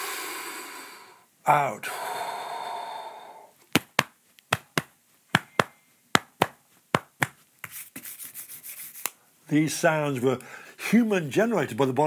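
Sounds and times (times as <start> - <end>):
slow exhaled breath: 0.0 - 3.6
hand patting chest: 3.6 - 8.2.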